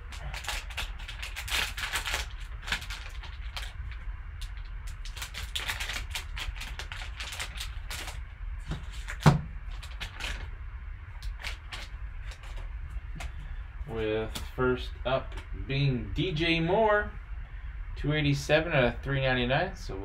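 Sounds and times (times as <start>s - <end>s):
foil pack crinkling: 0.0s - 10.5s, 11.2s - 13.5s.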